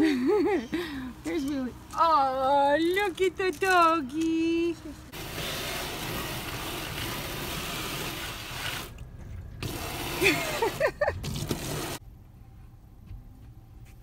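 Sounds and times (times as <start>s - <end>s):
hose water spraying on window: 5.1s - 9.0s, 9.6s - 12.0s.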